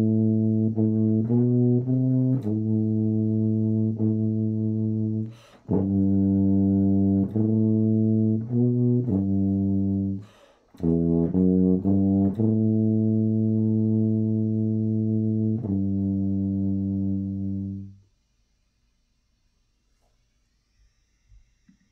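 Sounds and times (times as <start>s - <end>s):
tuba playing slow hymn: 0.0s - 18.1s
player taking breath: 5.3s - 5.7s, 10.2s - 10.7s.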